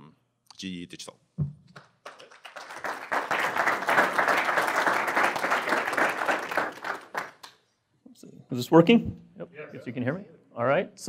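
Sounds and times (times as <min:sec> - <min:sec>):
audience applauding: 0:01.8 - 0:07.6.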